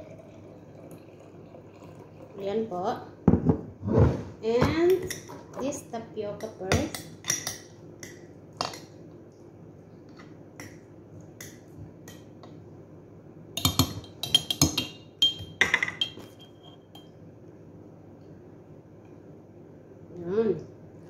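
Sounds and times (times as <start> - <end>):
metal spoon clinking on glass jars: 13.6 - 17.1.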